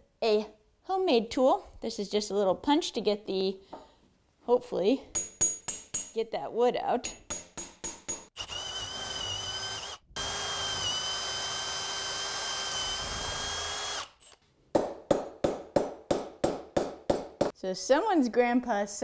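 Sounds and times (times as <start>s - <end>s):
hammer striking steel punch: 5.1s - 6.2s
cordless drill boring wood: 8.4s - 14.4s.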